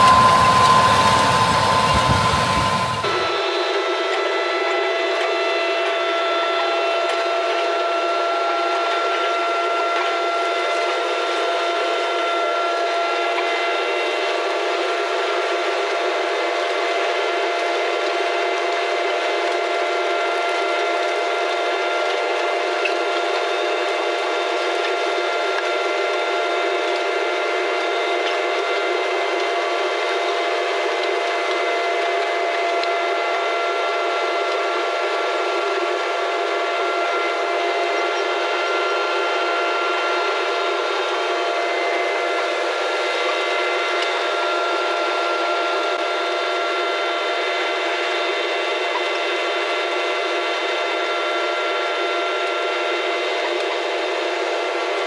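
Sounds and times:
hiss: 0.0 - 3.4
steady mechanical whine: 0.0 - 55.0.

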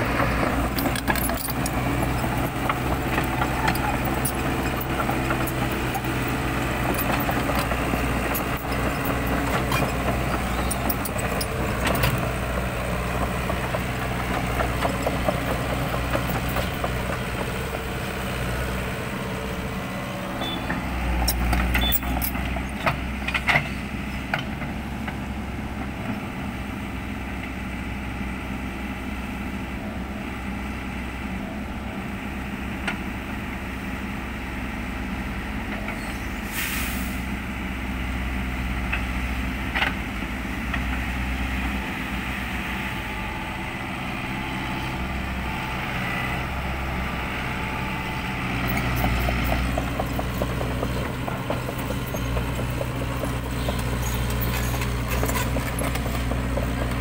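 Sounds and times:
excavator diesel engine running: 0.0 - 57.0
short hiss: 36.4 - 37.3.

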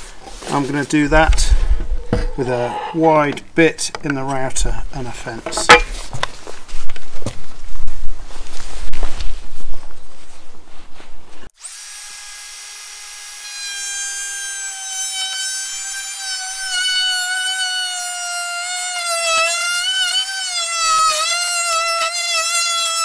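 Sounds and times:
router whining cutting wood: 11.6 - 23.0.

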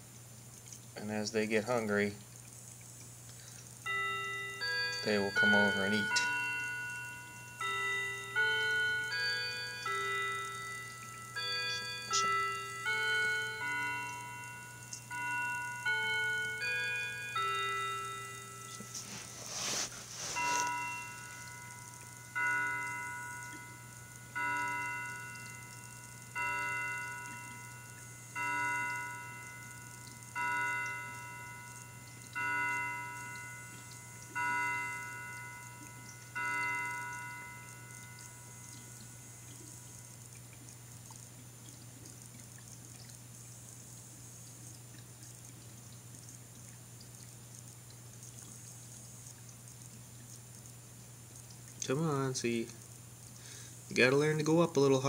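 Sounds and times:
steady low hum: 0.0 - 54.6
clock chiming bell strikes: 3.8 - 40.2.

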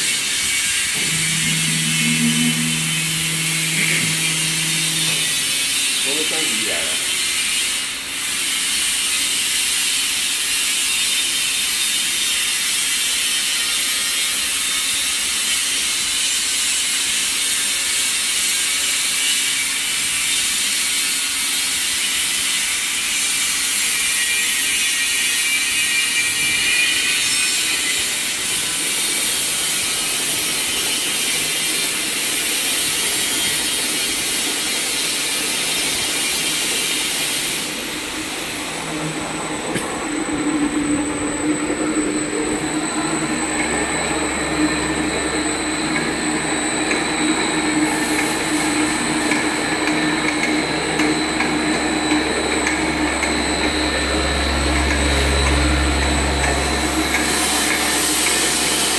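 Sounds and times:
mixer motor running: 0.0 - 7.4, 37.5 - 58.9
faint rising whine: 0.8 - 7.2, 37.6 - 58.9.

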